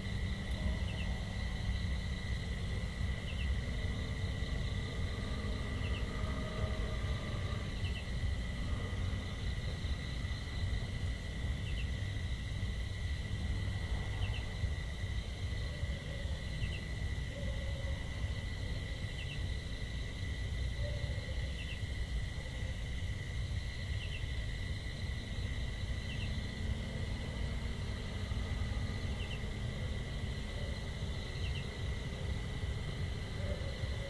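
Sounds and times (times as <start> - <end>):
high insect drone: 0.0 - 34.0.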